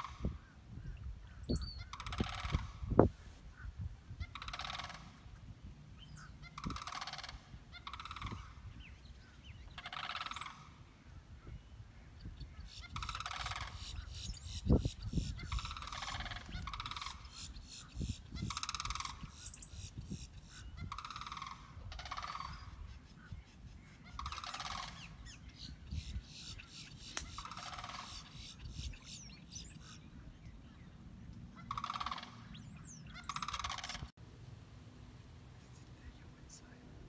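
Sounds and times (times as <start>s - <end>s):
large birds honking: 1.4s - 5.3s, 6.2s - 10.8s, 12.8s - 19.4s, 20.7s - 23.3s, 24.0s - 25.3s, 26.4s - 28.7s, 31.5s - 34.1s.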